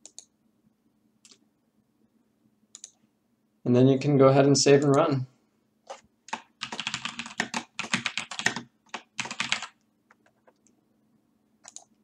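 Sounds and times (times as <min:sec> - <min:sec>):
computer keyboard typing: 0:02.7 - 0:03.0, 0:06.3 - 0:10.7, 0:11.6 - 0:12.0.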